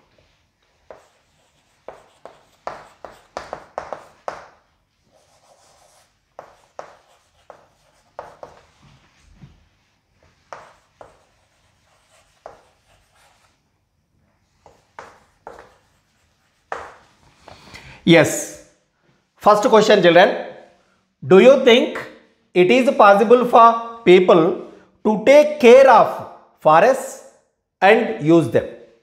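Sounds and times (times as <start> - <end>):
chalk writing on blackboard: 0.2 - 13.6, 14.4 - 17.7.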